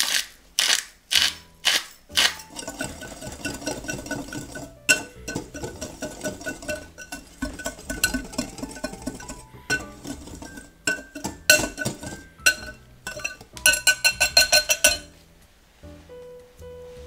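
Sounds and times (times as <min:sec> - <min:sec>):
wire whisk clinking in glass bowl: 0:02.2 - 0:15.1.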